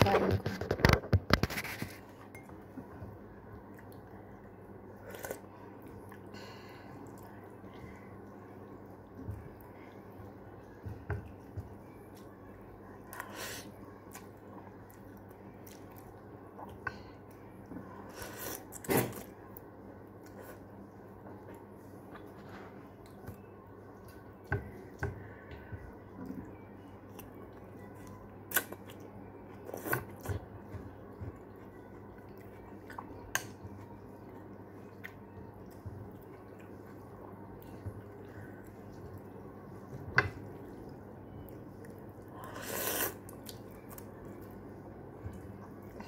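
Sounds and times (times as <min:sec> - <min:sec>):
slurp of noodles: 0:42.5 - 0:43.2.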